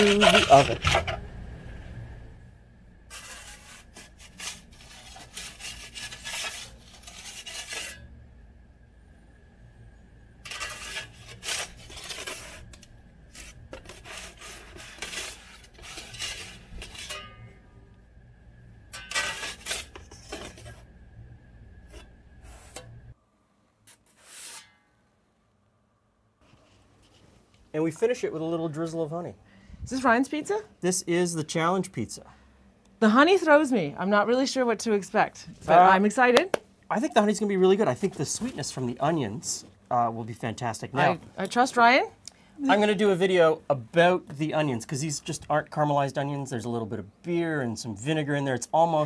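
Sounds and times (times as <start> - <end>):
metal peel scraping oven floor: 0.0 - 1.2, 3.1 - 8.1, 10.4 - 17.5, 18.9 - 20.8
low steady hum: 0.0 - 23.9, 24.8 - 49.0.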